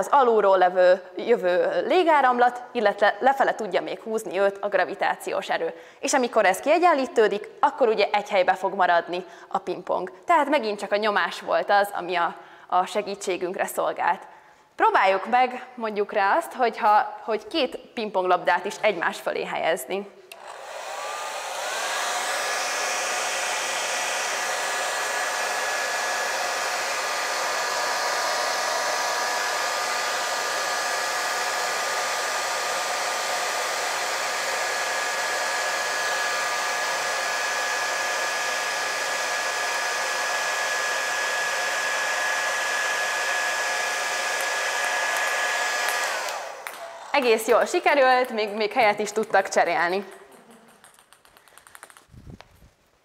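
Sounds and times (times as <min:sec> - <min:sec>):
hair dryer running: 0:20.3 - 0:49.6.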